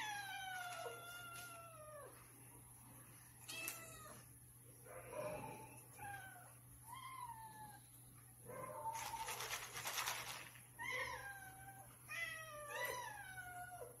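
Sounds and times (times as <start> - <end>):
cats meowing: 0.0 - 2.3, 3.4 - 4.3, 10.8 - 14.0.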